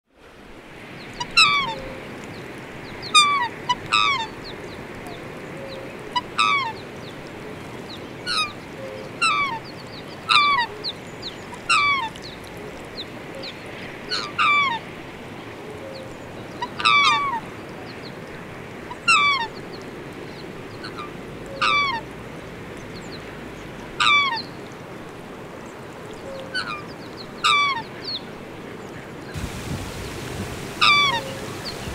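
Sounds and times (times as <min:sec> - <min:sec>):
steady background hiss: 0:00.2 - 0:31.9
waterfowl honking: 0:01.2 - 0:02.0, 0:03.1 - 0:04.4, 0:06.1 - 0:06.8, 0:09.2 - 0:09.6, 0:10.3 - 0:10.8, 0:11.5 - 0:12.1, 0:16.6 - 0:17.4, 0:18.9 - 0:19.6, 0:20.8 - 0:22.0, 0:24.0 - 0:24.5, 0:27.4 - 0:27.9, 0:29.4 - 0:31.9.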